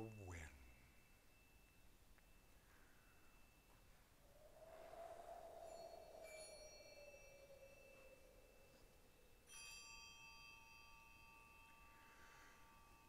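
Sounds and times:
soft low tone: 0.0s - 9.8s
bell-like chimes ringing: 0.0s - 13.0s.

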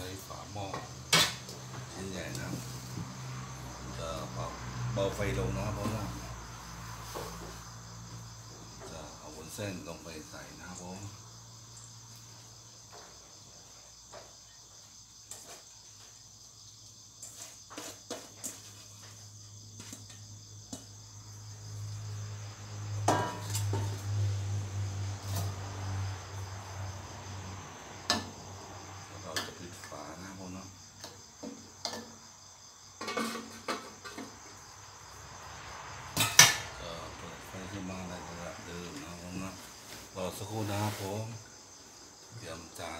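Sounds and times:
crickets trilling: 0.0s - 42.9s
metallic clatter of spatula: 36.2s - 36.7s.

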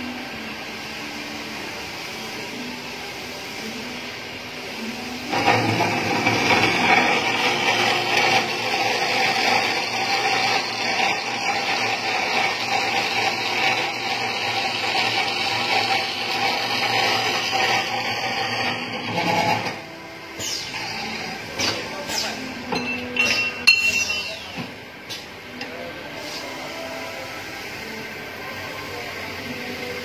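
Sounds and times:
circular saw cutting metal: 5.3s - 22.6s.

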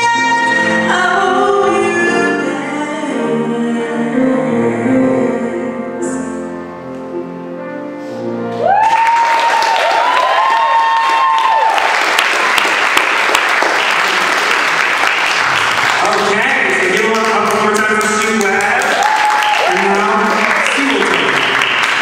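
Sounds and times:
whooping cheers: 8.6s - 12.2s, 18.8s - 20.0s
audience applause: 8.6s - 22.0s.

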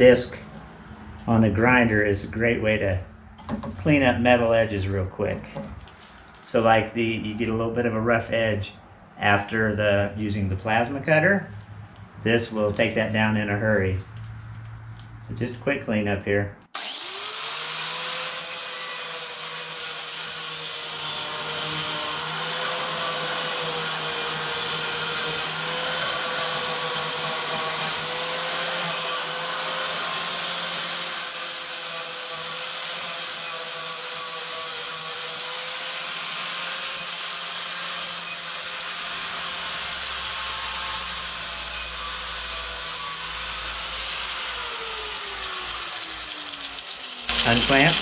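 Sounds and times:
grinder disc spinning down: 16.8s - 18.4s, 43.4s - 48.0s
angle grinder grinding steel: 16.8s - 48.0s.

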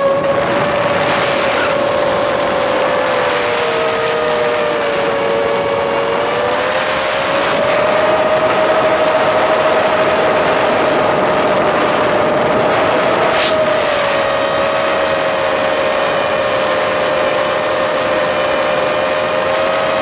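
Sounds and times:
drone motors whining: 0.0s - 10.3s
rushing air hiss: 1.0s - 3.7s.

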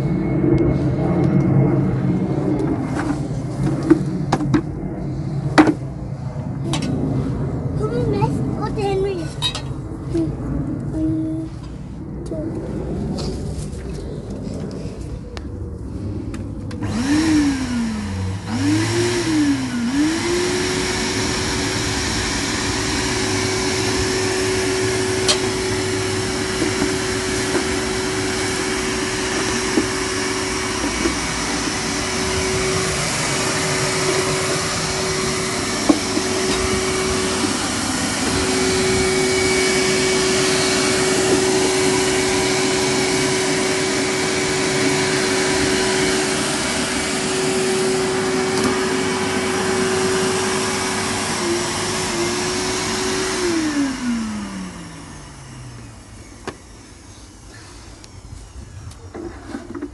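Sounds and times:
vacuum cleaner motor whine: 0.0s - 7.8s, 9.4s - 59.9s.

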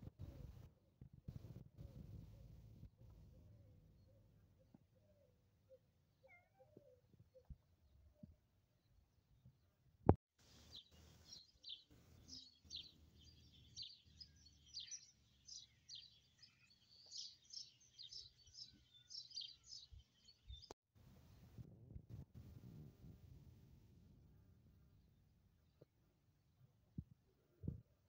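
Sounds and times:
small birds chirping: 1.3s - 9.7s, 10.4s - 20.8s.

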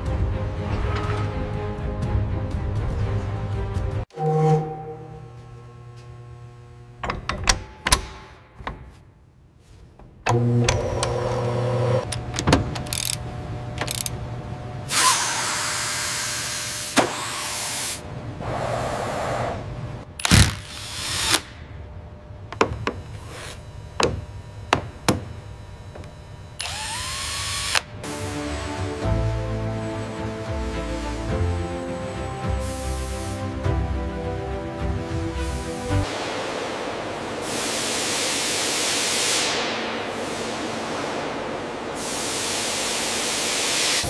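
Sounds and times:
sharp clicks and metal knocks: 7.0s - 8.9s.

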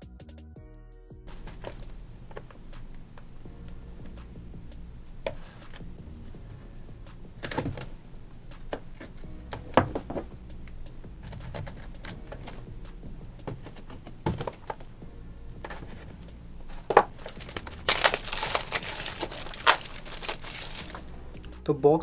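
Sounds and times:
plastic wrap crinkling: 16.7s - 21.1s
blade slitting plastic wrap: 17.0s - 21.1s.

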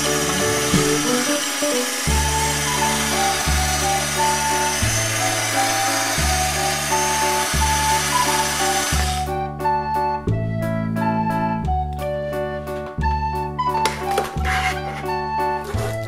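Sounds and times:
toy grinder whirring buzz: 0.0s - 9.3s, 13.9s - 16.0s
background music: 0.0s - 16.0s.

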